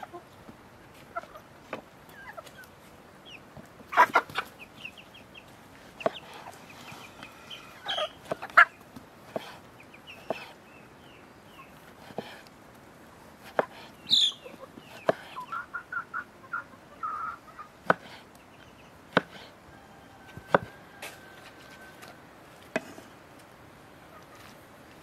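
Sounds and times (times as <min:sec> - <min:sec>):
hen clucking: 0:00.0 - 0:12.4, 0:13.4 - 0:23.2, 0:23.9 - 0:25.0
knife slicing tomatoes: 0:13.4 - 0:13.9, 0:14.9 - 0:15.4, 0:17.8 - 0:18.2, 0:19.1 - 0:19.5.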